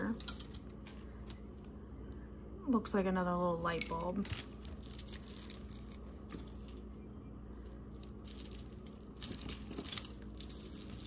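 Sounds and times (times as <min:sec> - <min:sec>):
metal jewelry clinking: 0:00.0 - 0:00.9, 0:03.7 - 0:11.0
faint steady hum: 0:00.0 - 0:11.0.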